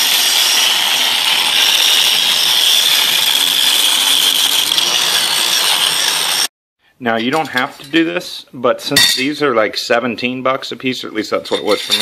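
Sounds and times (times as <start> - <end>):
angle grinder cutting steel: 0.0 - 6.5, 11.5 - 12.0.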